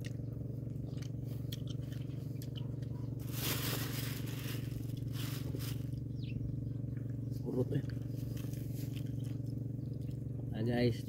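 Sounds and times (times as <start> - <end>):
low engine-like hum: 0.0 - 11.0
crinkling and scraping handling: 0.9 - 6.1, 7.7 - 9.5.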